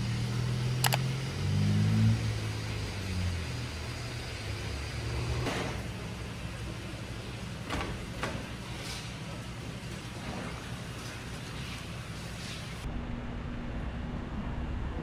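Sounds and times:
vehicle low rumble: 0:00.0 - 0:07.4, 0:12.8 - 0:15.0.

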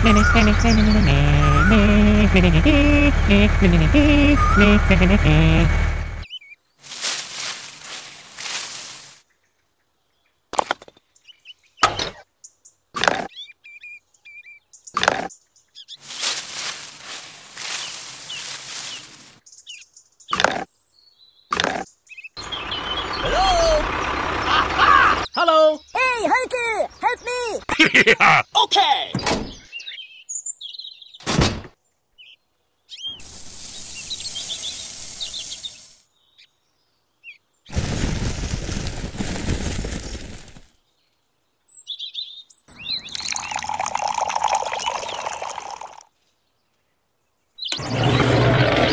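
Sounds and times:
small birds chirping: 0:00.0 - 0:03.6, 0:06.2 - 0:31.2, 0:31.8 - 0:48.9
sand pouring into metal drum: 0:33.2 - 0:36.0, 0:37.7 - 0:40.6.

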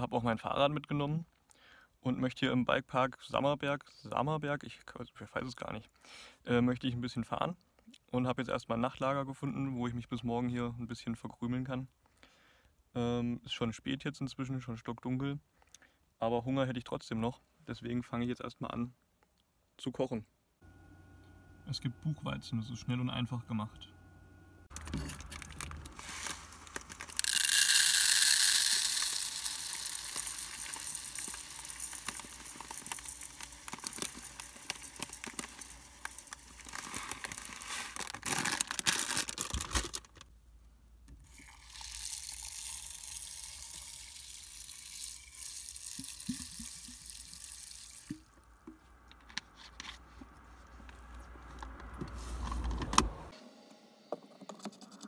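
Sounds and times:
plastic bag crinkling: 0:24.7 - 0:40.2
grains poured into pot: 0:24.8 - 0:40.0, 0:41.3 - 0:48.3
water poured into pot: 0:41.3 - 0:48.2.

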